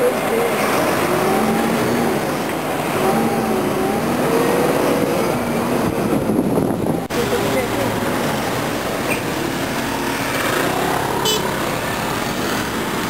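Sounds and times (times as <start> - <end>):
bus engine hum: 0.0 - 13.0
street traffic rumble: 0.0 - 13.0.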